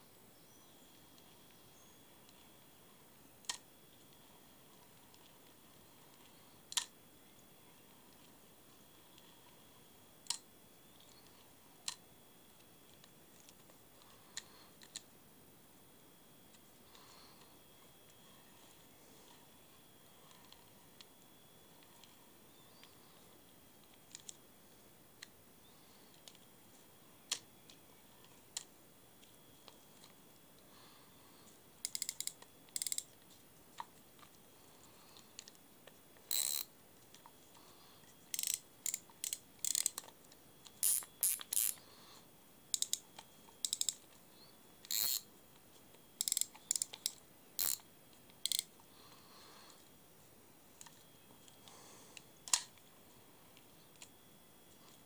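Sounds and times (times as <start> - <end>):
fishing reel clicking: 31.8 - 33.1, 36.3 - 36.7, 38.3 - 40.0, 40.8 - 41.8, 42.7 - 43.0, 43.6 - 44.0, 44.9 - 45.2, 46.2 - 47.8, 48.4 - 48.7.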